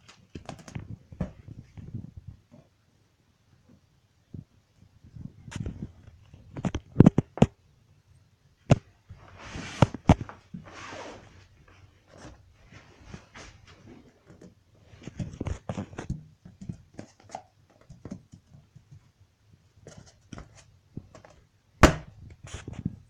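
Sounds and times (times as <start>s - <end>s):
knocks and thumps on hard floor: 21.8s - 22.1s.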